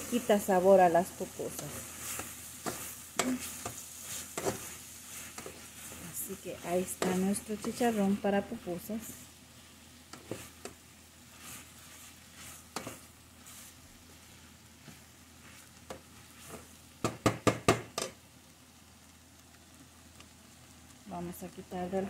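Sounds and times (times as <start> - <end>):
pork sizzling in a pot: 0.0 - 22.0
wooden spatula scraping pot: 1.4 - 8.3, 10.1 - 16.7.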